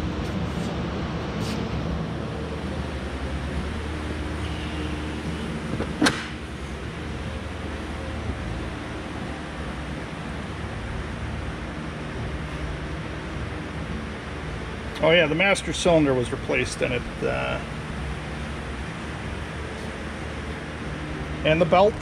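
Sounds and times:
steady low hum: 0.0 - 22.0
car hood clunk: 5.7 - 6.4.

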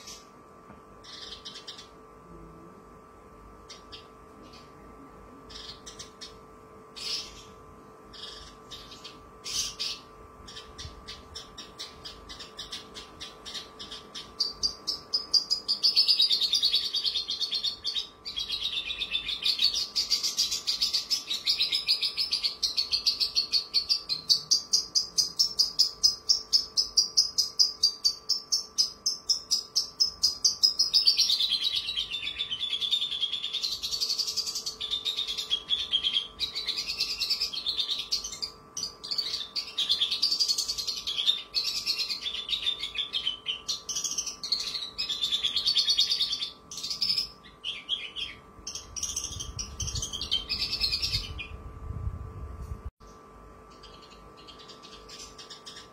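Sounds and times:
bush lark singing: 7.0 - 51.6.

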